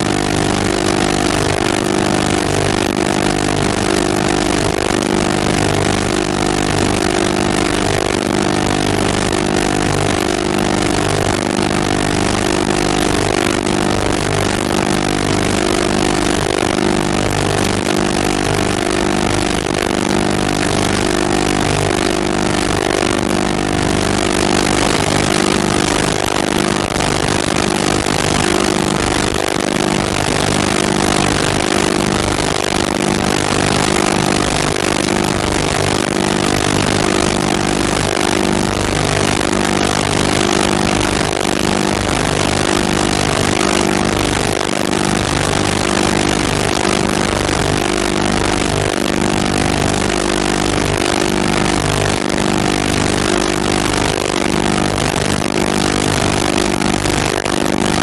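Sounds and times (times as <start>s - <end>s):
machine hum tones: 0.0s - 58.0s.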